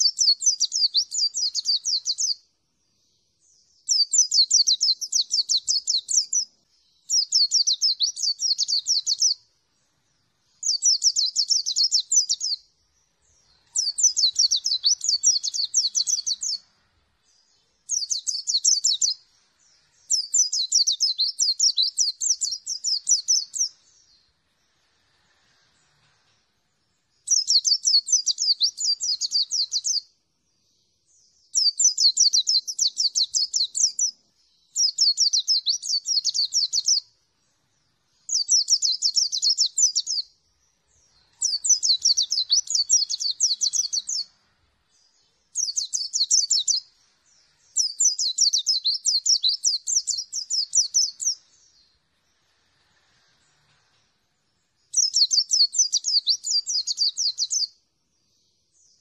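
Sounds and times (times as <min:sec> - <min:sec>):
bird twittering: 0:00.0 - 0:02.4, 0:03.8 - 0:09.4, 0:10.5 - 0:19.2, 0:19.9 - 0:24.2, 0:27.2 - 0:30.0, 0:31.5 - 0:37.1, 0:38.2 - 0:40.3, 0:40.9 - 0:44.4, 0:45.0 - 0:51.9, 0:54.9 - 0:57.7.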